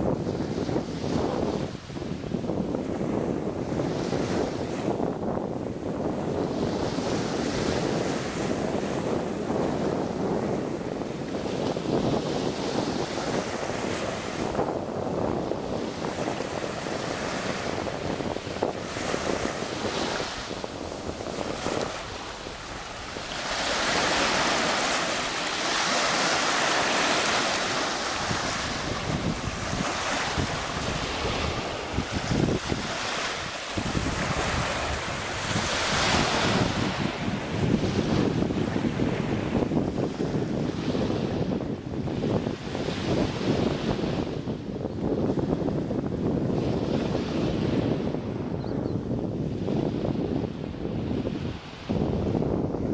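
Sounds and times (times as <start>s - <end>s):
small waves washing on sand: 0.0s - 48.5s, 49.5s - 52.9s
wind rumbling on microphone: 0.0s - 52.9s.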